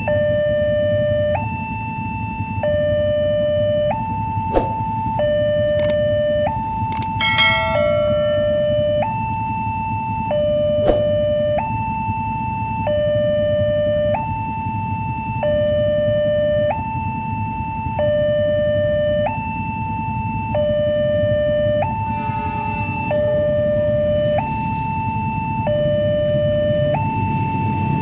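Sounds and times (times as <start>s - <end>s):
level crossing alarm tones: 5.2s - 11.6s, 20.4s - 28.0s
short ring: 7.0s - 9.3s.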